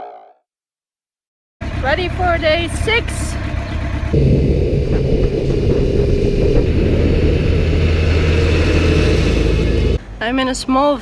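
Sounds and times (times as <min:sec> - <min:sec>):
wind rumble on microphone: 0:04.1 - 0:10.0.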